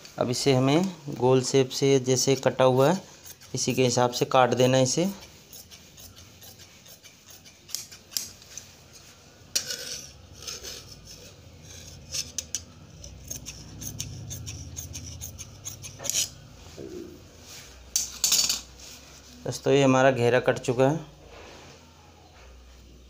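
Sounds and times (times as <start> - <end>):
scissors snipping fabric: 5.0 - 8.6, 12.0 - 16.4.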